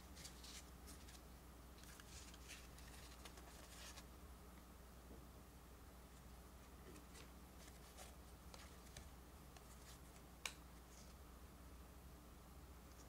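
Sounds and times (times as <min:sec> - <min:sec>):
trading cards rustling and clicking: 0:01.8 - 0:04.0.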